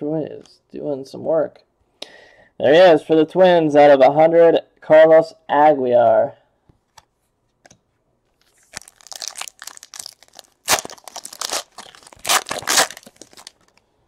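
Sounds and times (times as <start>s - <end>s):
foil wrapper ripping and crackling: 8.5s - 13.8s.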